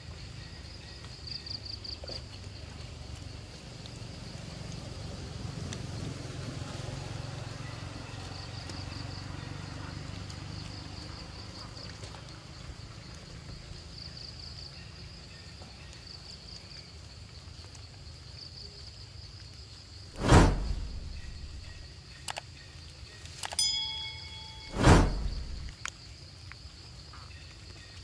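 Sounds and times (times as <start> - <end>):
insects droning: 0.0 - 28.0
low rumble: 20.2 - 21.9, 24.6 - 25.8.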